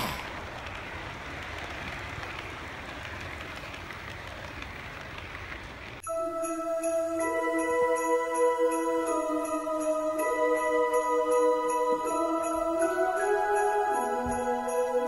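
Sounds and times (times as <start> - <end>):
model train wheels on rails: 0.0 - 6.0
music with held notes: 6.0 - 15.0.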